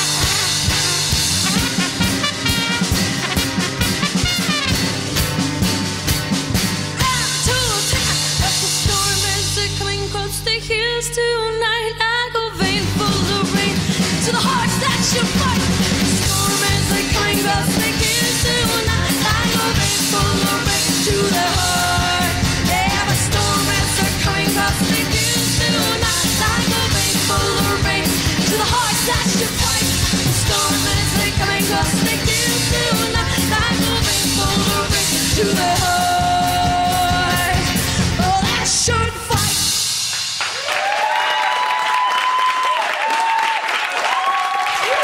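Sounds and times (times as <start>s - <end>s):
driving drum beat: 0.0s - 9.9s, 12.6s - 40.9s
woman singing lead vocal: 7.0s - 39.7s
applause: 40.1s - 45.0s.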